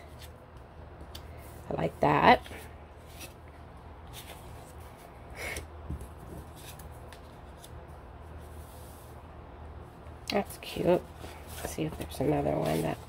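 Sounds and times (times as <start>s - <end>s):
paper cards rustling and sliding: 2.4s - 5.1s, 6.2s - 9.2s, 11.1s - 13.0s.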